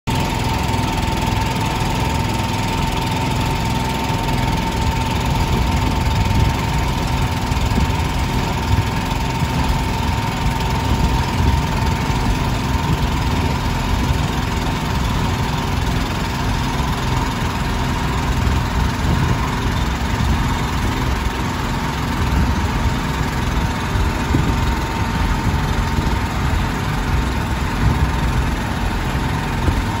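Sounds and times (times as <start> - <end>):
boat engine rumbling: 0.1 - 30.0
engine whine: 0.1 - 30.0
rain on river: 0.2 - 30.0.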